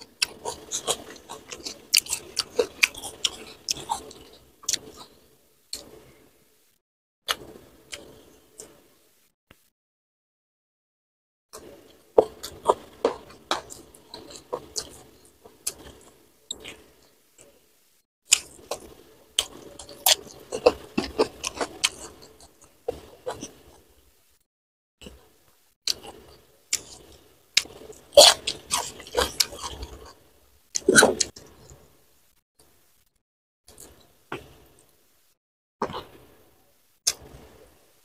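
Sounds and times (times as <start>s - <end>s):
close chewing and mouth sounds: 0.0s - 6.0s, 11.6s - 17.6s, 18.3s - 24.0s, 25.0s - 31.9s, 33.7s - 35.0s, 35.8s - 36.2s.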